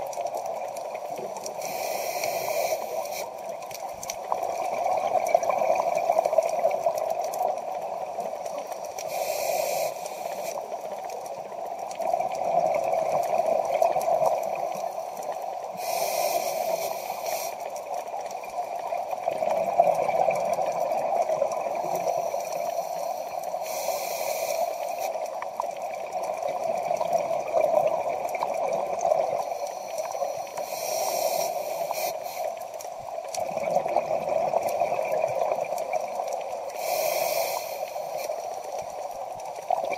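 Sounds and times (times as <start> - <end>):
steady water noise: 0.0 - 39.9
regulator hissing inhalations: 1.5 - 3.6, 8.8 - 10.7, 14.6 - 17.8, 21.8 - 25.3, 29.3 - 32.8, 36.7 - 38.7.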